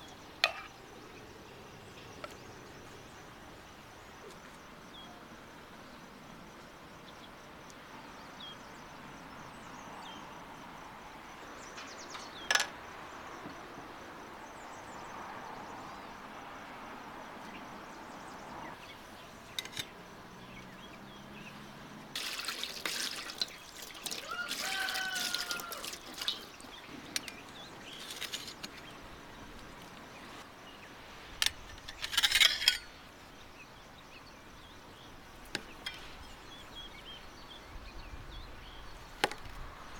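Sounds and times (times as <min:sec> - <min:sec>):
liquid pouring into a steel bowl: 0:22.2 - 0:26.6.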